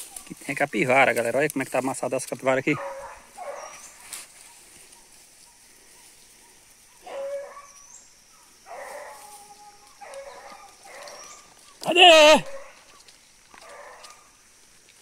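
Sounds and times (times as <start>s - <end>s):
dogs baying faintly: 2.5s - 14.4s
bird chirping: 2.8s - 8.6s, 9.6s - 11.9s.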